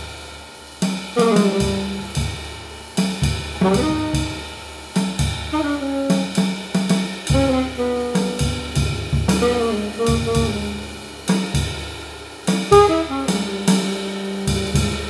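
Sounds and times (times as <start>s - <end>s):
drum kit: 0.0s - 15.0s
saxophone playing short notes: 1.2s - 2.3s, 3.6s - 4.4s, 5.5s - 6.4s, 7.3s - 11.1s, 12.7s - 15.0s.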